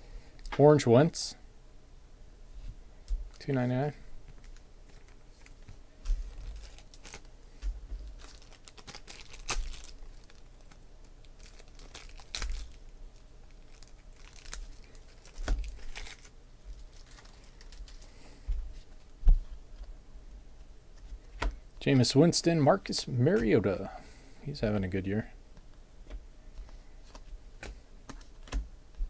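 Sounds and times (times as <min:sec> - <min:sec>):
cards being shuffled: 0:27.0 - 0:28.7.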